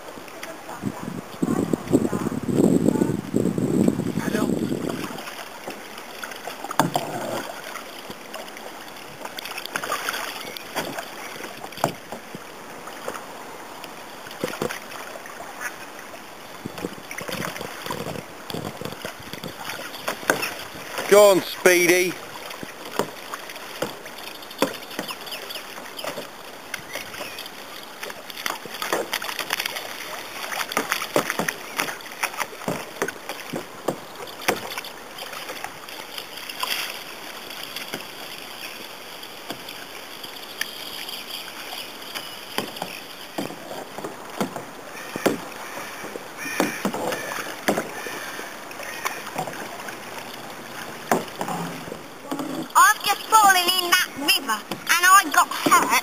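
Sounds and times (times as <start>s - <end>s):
paddle splashing in water: 0.0s - 56.0s.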